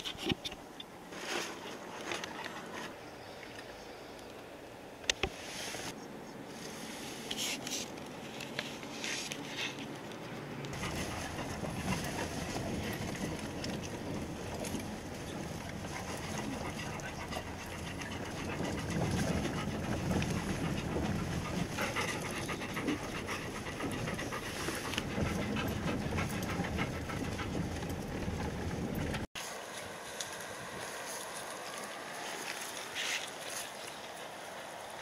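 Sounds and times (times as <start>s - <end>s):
dogs panting heavily: 10.7s - 29.3s
car rumbling over gravel: 10.8s - 29.3s.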